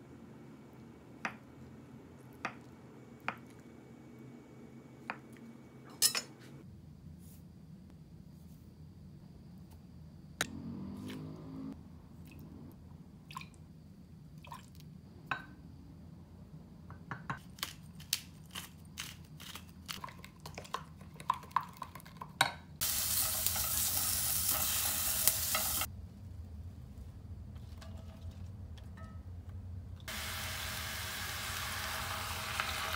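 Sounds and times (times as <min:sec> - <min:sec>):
onions sizzling in oil: 0:22.8 - 0:25.9, 0:30.1 - 0:32.9.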